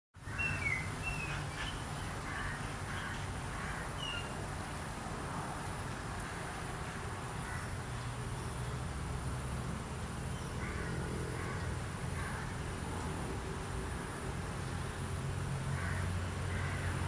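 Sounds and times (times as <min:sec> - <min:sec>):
faint bird calls: 0:00.2 - 0:04.4, 0:06.2 - 0:08.1.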